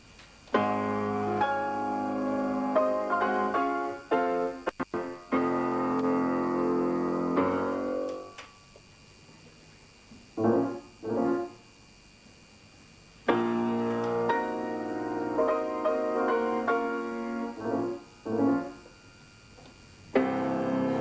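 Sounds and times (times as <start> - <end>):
keyboard chords: 0.5 - 8.4, 13.3 - 18.9, 20.1 - 21.0.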